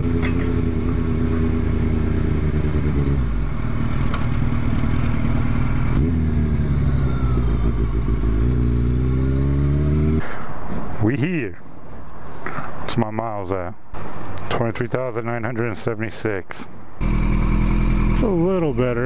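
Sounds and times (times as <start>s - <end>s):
motorcycle engine revving: 0.0s - 10.4s, 17.0s - 19.0s.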